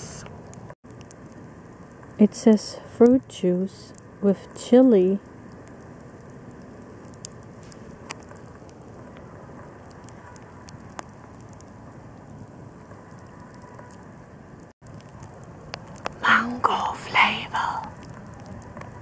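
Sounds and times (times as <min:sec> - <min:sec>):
campfire hissing and crackling: 0:00.0 - 0:19.0.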